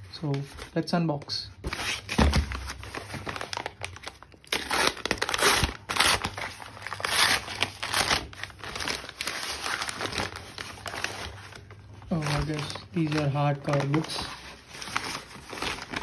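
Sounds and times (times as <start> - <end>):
paper bag crinkling and rustling: 0.0 - 16.0.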